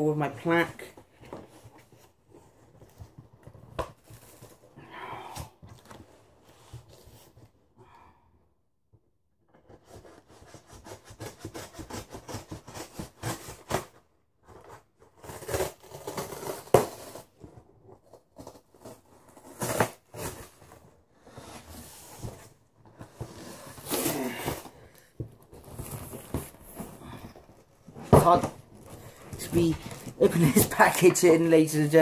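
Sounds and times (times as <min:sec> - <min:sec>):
cardboard rubbing and crackling: 0:09.5 - 0:32.0.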